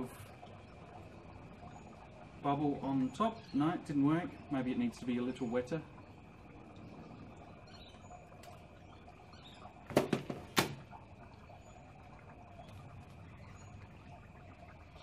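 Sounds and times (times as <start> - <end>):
faint bird chirps: 0.0 - 15.0
low steady background noise: 0.0 - 15.0
sharp knocks: 9.9 - 10.8.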